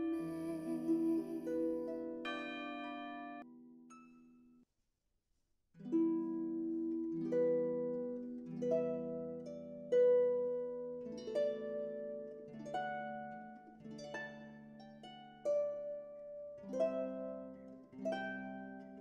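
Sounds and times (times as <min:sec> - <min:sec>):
slow harp notes: 0:00.0 - 0:03.5.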